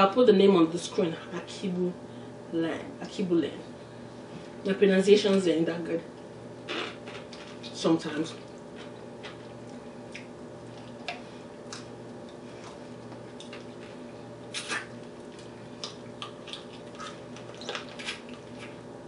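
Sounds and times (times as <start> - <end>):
steady low hum: 0.0 - 19.0
lip smacks: 9.6 - 13.8, 14.4 - 18.8.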